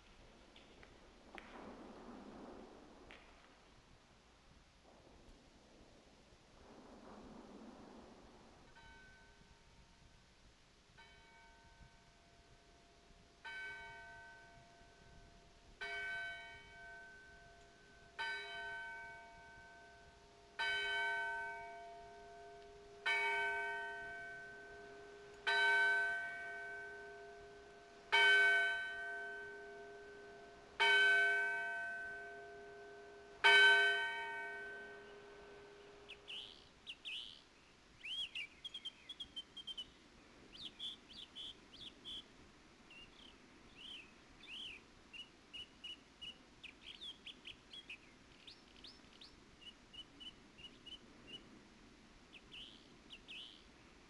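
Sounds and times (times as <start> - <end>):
birds chirping: 35.0 - 42.3, 42.9 - 51.5, 52.3 - 53.7.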